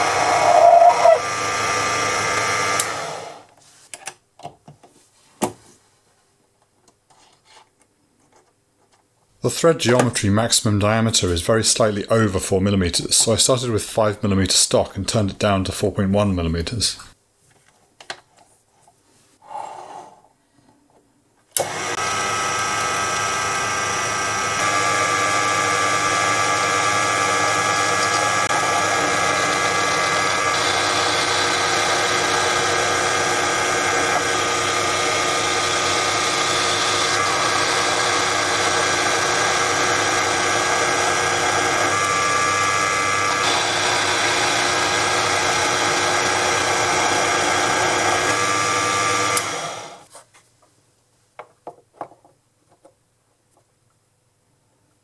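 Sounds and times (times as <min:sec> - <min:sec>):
lathe motor whine: 0:00.0 - 0:03.5, 0:21.6 - 0:50.0.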